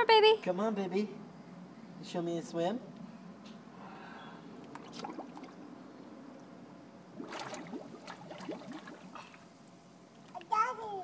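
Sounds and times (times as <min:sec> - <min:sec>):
pool water splashing and lapping: 0:04.4 - 0:10.6.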